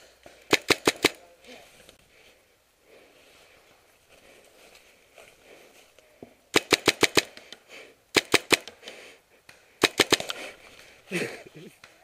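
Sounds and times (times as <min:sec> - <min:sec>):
paintball marker firing: 0:00.3 - 0:01.2, 0:06.5 - 0:10.5.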